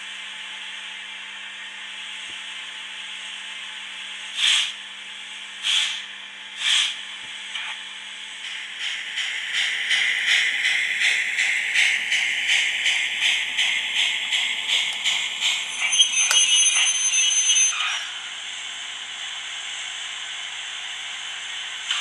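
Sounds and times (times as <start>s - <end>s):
steam locomotive chuffing: 5.6s - 7.1s, 8.2s - 18.2s.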